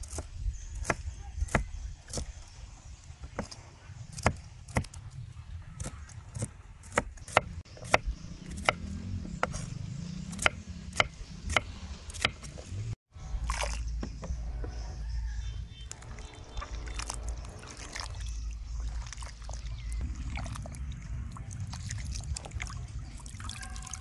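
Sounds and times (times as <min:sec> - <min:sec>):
steady low rumble: 0:13.2 - 0:23.5.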